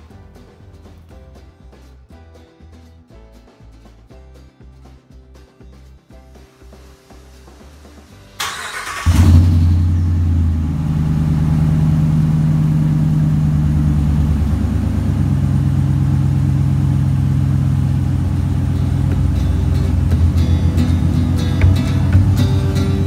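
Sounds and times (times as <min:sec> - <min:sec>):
engine starting and idling: 0:08.3 - 0:23.0.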